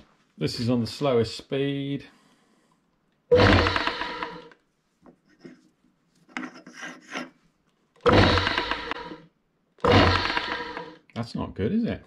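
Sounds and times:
lathe motor rough rasping hum: 3.3s - 4.5s, 8.0s - 9.2s, 9.8s - 11.0s.

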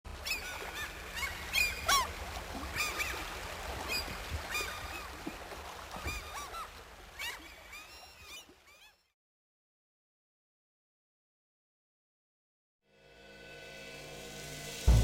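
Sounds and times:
gulls calling: 0.1s - 9.1s.

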